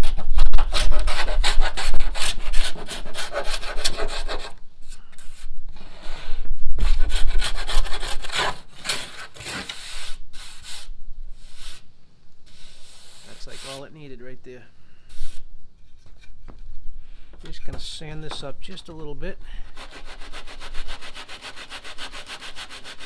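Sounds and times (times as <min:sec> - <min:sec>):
hand plane shaving wood: 0:19.8 - 0:23.0.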